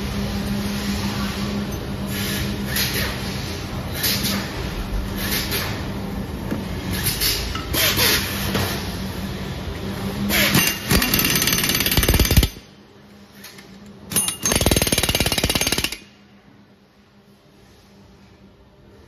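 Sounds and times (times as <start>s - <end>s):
impact wrench hammering: 10.3s - 12.7s, 14.1s - 16.1s.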